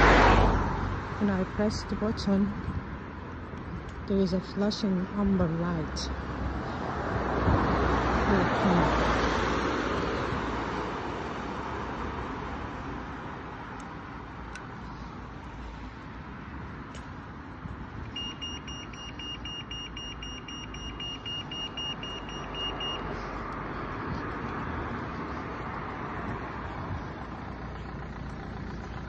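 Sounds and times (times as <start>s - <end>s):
car passing: 0.0s - 29.0s
road traffic: 0.0s - 29.0s
pedestrian crossing signal beeping: 18.0s - 24.6s.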